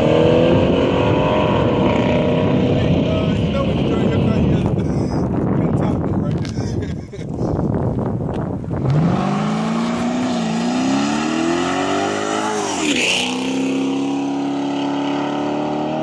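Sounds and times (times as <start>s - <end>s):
raspy engine accelerating hard: 0.0s - 4.5s.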